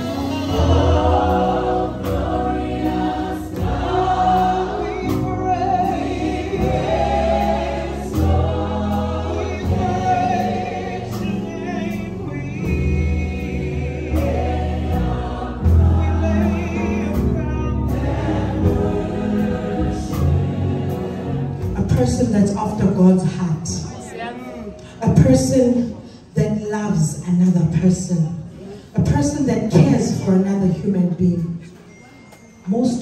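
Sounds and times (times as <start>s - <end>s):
choir singing: 0.0s - 21.8s
bass line: 0.0s - 22.2s.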